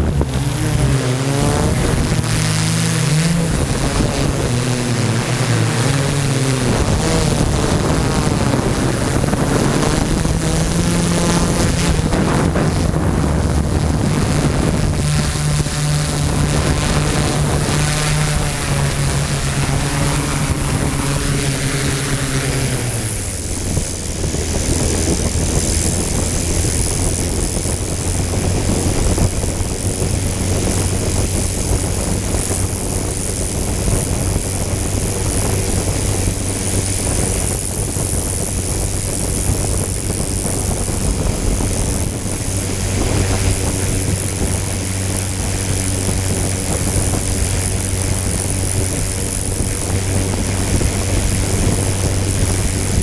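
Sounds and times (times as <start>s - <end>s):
drone motors humming: 0.0s - 53.0s.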